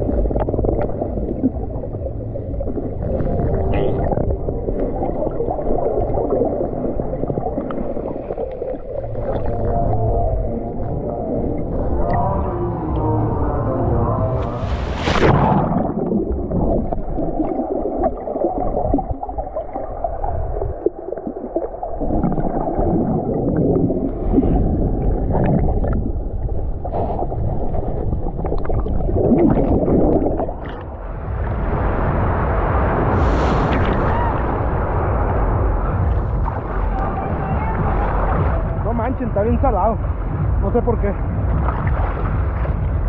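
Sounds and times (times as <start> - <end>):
muffled underwater churning: 0.0 - 43.0
water splash: 14.3 - 43.0.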